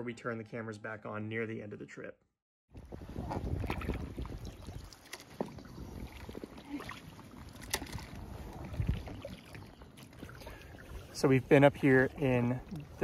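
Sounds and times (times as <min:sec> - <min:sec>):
kayak paddles dipping in water: 0:02.8 - 0:13.0
small splashes and drips: 0:03.5 - 0:13.0.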